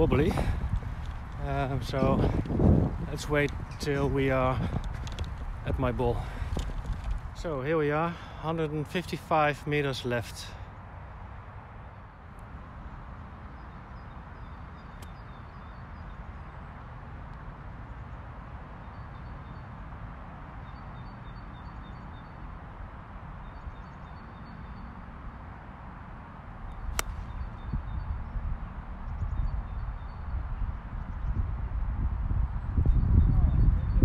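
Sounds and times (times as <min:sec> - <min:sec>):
golf iron striking ball: 0:26.9 - 0:27.4.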